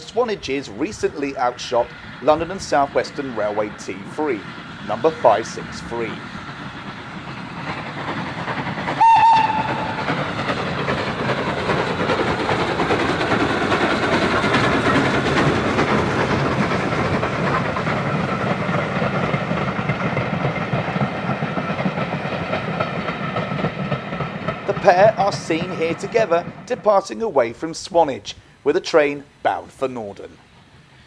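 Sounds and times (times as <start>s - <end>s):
steam locomotive exhaust: 0.0s - 31.0s
train wheels clattering on rails: 0.0s - 31.0s
steam whistle blast: 9.0s - 10.1s.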